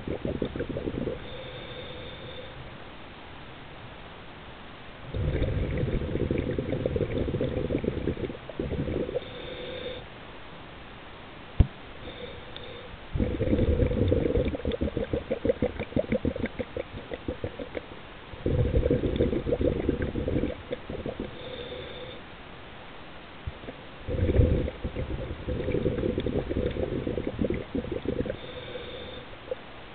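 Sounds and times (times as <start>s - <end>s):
underwater exhaled bubbles gurgling: 0.0s - 1.5s, 5.1s - 9.4s, 13.2s - 21.7s, 23.5s - 29.6s.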